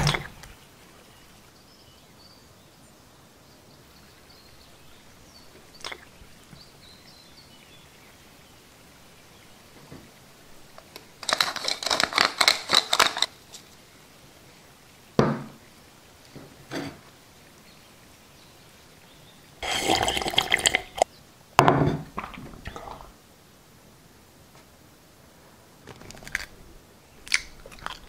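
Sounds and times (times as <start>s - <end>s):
wet eating squelches: 0.0s - 0.7s, 5.5s - 6.6s, 22.1s - 23.2s, 27.2s - 28.0s.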